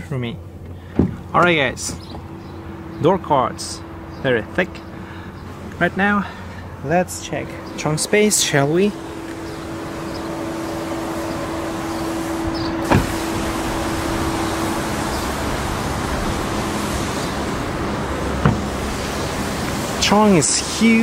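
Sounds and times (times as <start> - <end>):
steady hum: 3.8 - 21.0
car door shutting: 12.6 - 13.5, 18.3 - 19.2.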